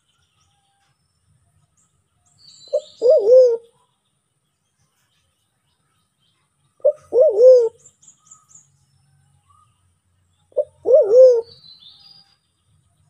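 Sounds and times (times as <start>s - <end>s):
small birds chirping: 0.0s - 13.0s
dove calling with wavering hoot: 2.7s - 3.8s, 6.8s - 7.9s, 10.5s - 11.7s.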